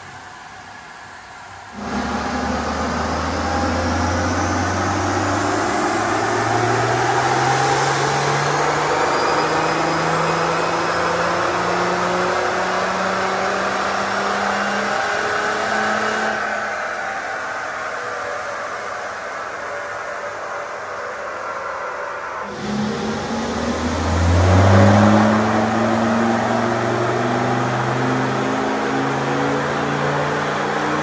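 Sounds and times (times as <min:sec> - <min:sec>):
diesel engine revving under load: 0:01.8 - 0:16.4, 0:22.4 - 0:31.0
turbo whine rising: 0:01.8 - 0:20.1, 0:22.4 - 0:31.0.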